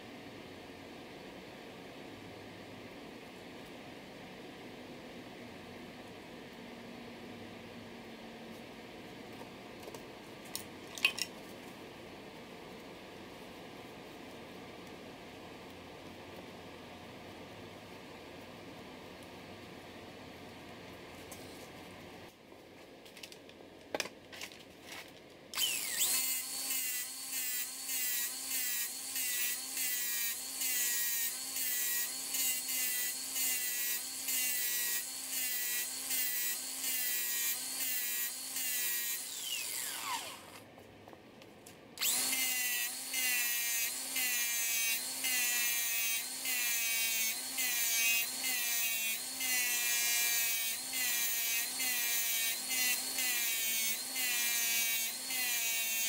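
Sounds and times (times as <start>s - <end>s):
angle grinder grinding steel: 25.6s - 40.6s, 42.0s - 56.0s.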